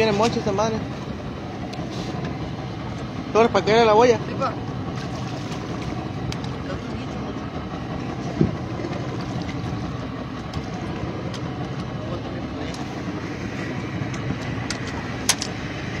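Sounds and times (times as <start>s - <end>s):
boat motor rumbling: 0.0s - 16.0s.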